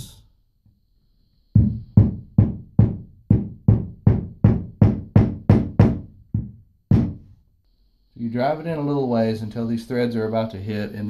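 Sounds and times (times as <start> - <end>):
hammer tapping anchor into drywall: 1.6 - 7.2.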